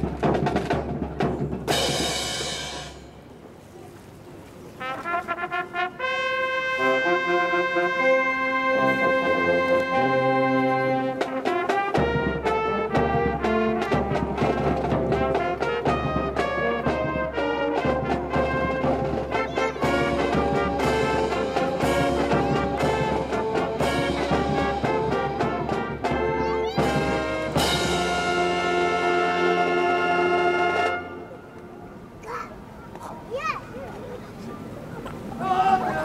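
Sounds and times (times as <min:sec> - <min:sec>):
brass band music: 0:00.0 - 0:03.3, 0:04.8 - 0:32.1.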